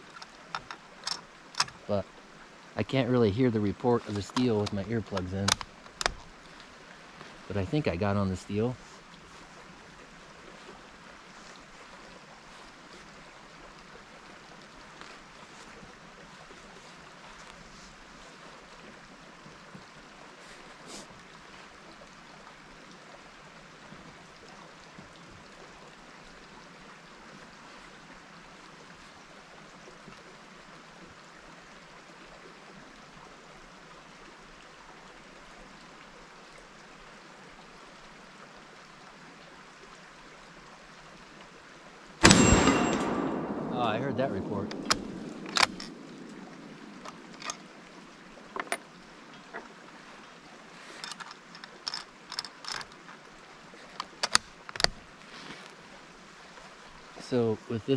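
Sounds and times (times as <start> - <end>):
faint clicks: 4.0 - 7.3.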